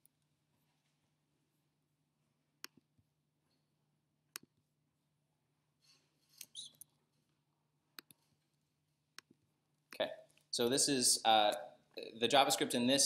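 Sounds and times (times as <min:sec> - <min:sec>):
computer mouse clicks: 0:08.0 - 0:08.2.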